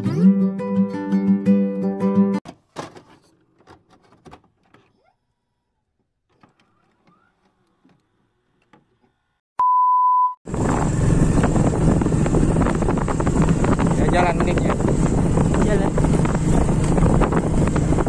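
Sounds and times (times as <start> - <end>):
wind noise on microphone: 10.5 - 18.0.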